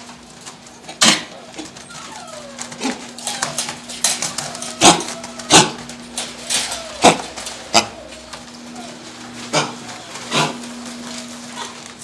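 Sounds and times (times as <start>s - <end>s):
dogs barking: 0.8s - 12.0s
dog yelping: 1.4s - 11.8s.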